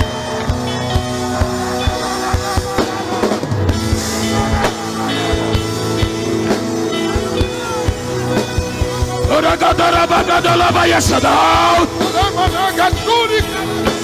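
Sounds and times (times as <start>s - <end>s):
drum kit beat: 0.0s - 14.0s
held chords: 0.0s - 14.0s.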